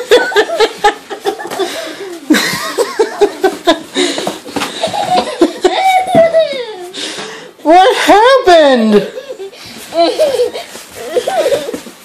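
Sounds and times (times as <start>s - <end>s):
child giggling: 0.0s - 4.0s, 4.6s - 7.0s, 9.0s - 12.0s.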